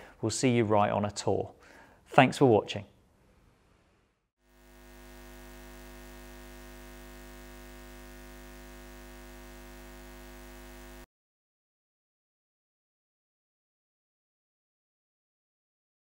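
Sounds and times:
electrical hum: 0:04.5 - 0:11.1.

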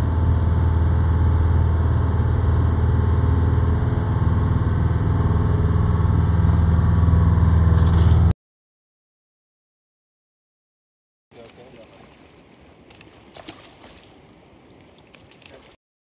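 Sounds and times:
boat engine humming: 0:00.0 - 0:08.3, 0:11.3 - 0:15.8.

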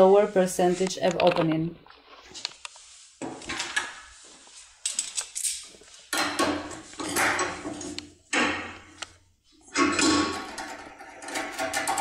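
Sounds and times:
metal tools clinking and rattling: 0:04.8 - 0:08.0, 0:09.8 - 0:12.0.

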